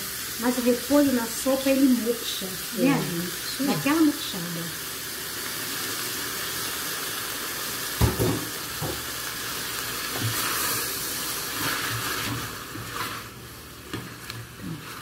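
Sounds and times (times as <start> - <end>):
food sizzling in a pot: 0.0 - 15.0
knocks on pot: 8.0 - 9.0
spatula stirring: 11.4 - 15.0.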